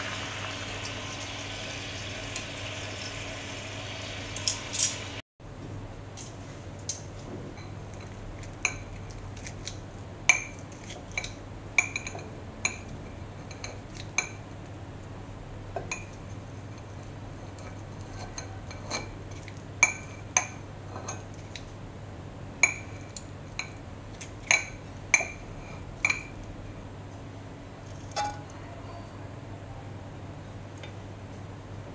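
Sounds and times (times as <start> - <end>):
tongs and scissors clinking on plate: 4.4 - 5.0, 27.9 - 28.6.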